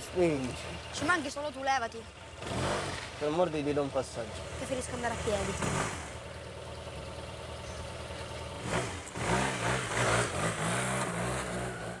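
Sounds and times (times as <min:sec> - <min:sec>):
motor scooter engine revving: 0:02.2 - 0:06.3, 0:07.1 - 0:12.0.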